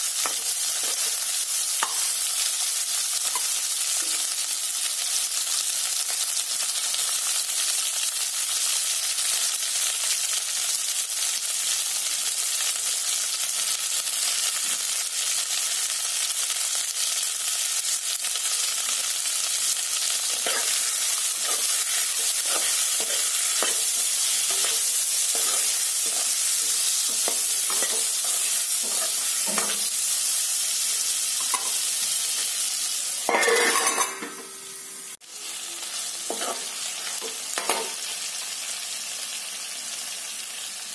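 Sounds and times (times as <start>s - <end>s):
onions sizzling in hot oil: 0.0s - 40.9s
metal spoon scraping and stirring: 0.2s - 1.2s, 20.3s - 29.9s, 33.3s - 34.6s
metal plate lid clattering: 33.3s - 34.6s.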